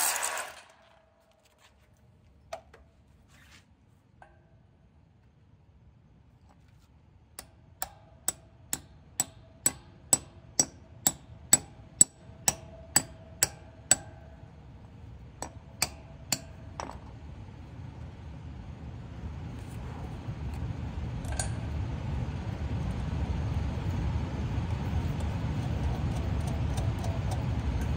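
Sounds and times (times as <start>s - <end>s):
hammer blows on metal bolt: 7.4s - 14.6s.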